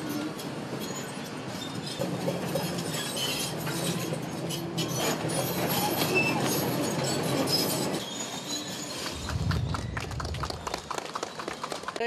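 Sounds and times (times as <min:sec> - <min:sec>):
steel tracks clanking and squealing: 0:00.0 - 0:09.6.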